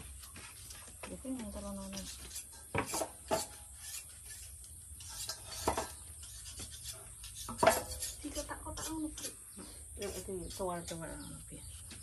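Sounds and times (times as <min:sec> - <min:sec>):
knife scraping tuber skin: 0:01.9 - 0:09.4.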